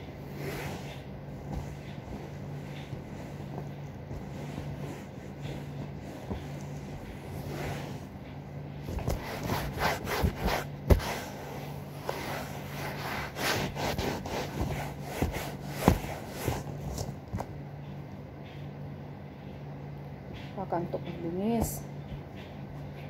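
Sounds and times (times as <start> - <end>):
cloth rubbing upholstery: 0.0 - 17.3.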